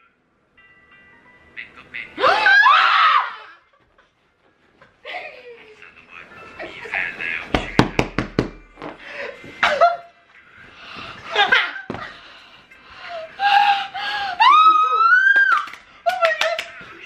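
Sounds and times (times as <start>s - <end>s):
people laughing and shrieking: 2.2s - 3.7s, 14.2s - 15.7s.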